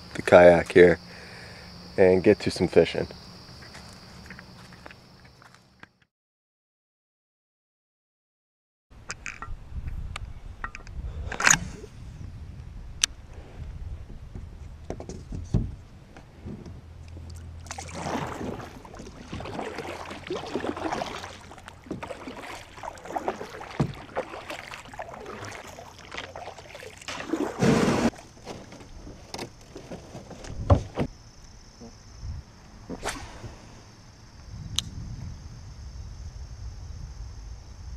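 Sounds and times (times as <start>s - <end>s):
rush of water: 17.3s - 28.2s
paddle strokes splashing: 17.3s - 30.2s.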